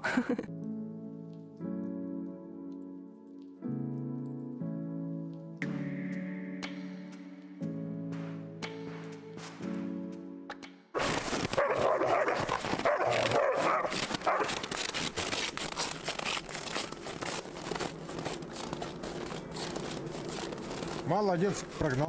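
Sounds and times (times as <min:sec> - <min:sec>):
background music: 0:00.0 - 0:22.0
dog barking: 0:11.0 - 0:14.6
dense crackle of clicks: 0:11.0 - 0:22.0.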